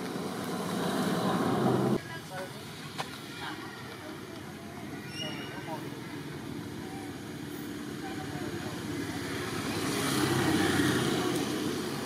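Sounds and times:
low engine rumble: 0.0s - 2.0s.

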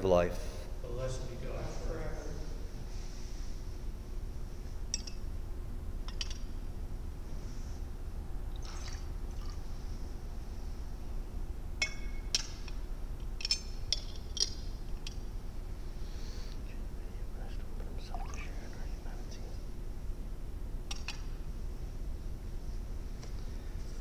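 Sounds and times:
liquid pouring: 8.6s - 9.7s, 18.1s - 18.5s
glass clinking on rim: 11.8s - 12.5s.

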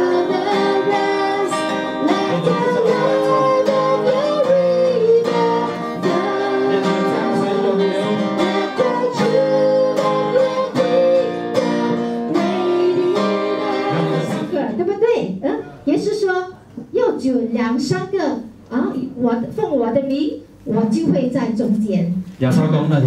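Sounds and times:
person singing into microphones: 0.0s - 14.5s
acoustic guitar strumming: 0.0s - 14.8s.

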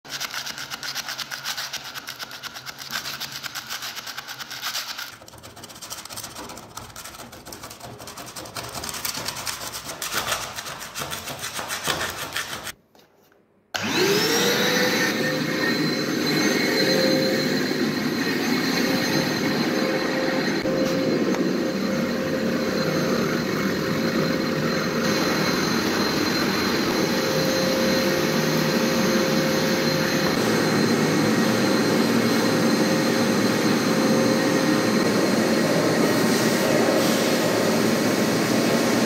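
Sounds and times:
hand tool scraping concrete floor: 0.1s - 39.0s
vacuum cleaner motor whine: 13.8s - 39.0s.

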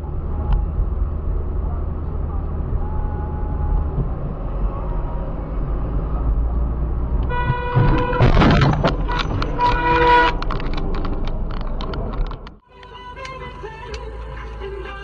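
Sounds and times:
car road and engine noise: 0.0s - 15.0s
car horn honking: 7.2s - 10.6s
loud car crash: 7.4s - 11.3s.

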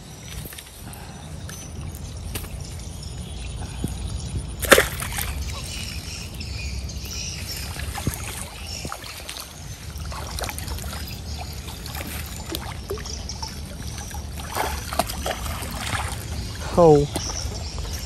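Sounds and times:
steady low rumble: 0.0s - 18.0s
fish splashing in water: 4.6s - 18.0s.

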